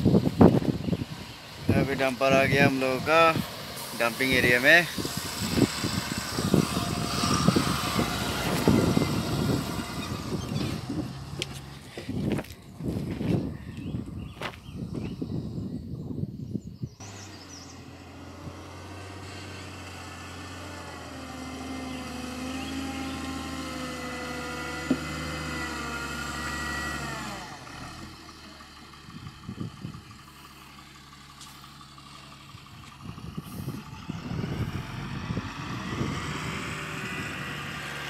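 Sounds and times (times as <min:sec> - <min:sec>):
heavy diesel engines running: 0:00.0 - 0:15.7, 0:17.0 - 0:38.0.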